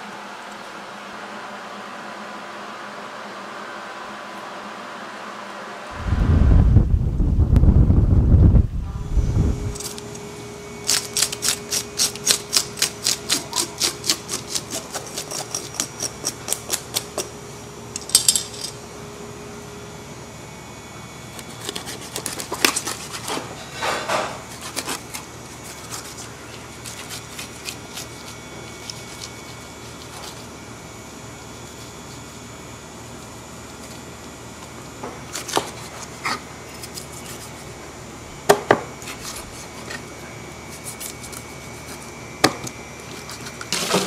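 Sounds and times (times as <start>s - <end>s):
cleaver cutting on wooden block: 11.0s - 17.3s, 21.4s - 23.3s
scaler scraping fish scales: 24.5s - 30.5s.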